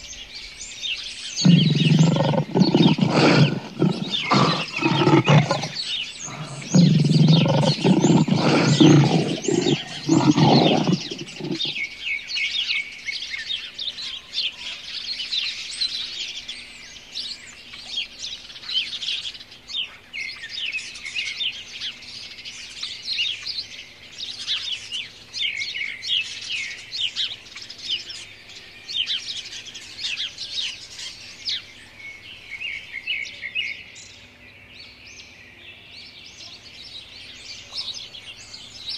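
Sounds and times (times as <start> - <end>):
birds chirping: 0.0 - 12.4
lioness roaring and grunting: 1.4 - 11.8.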